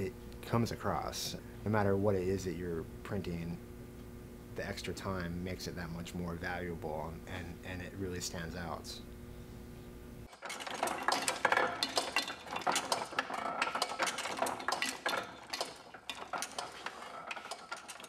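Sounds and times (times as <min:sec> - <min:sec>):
metallic clinking of printing press: 0:10.3 - 0:18.0.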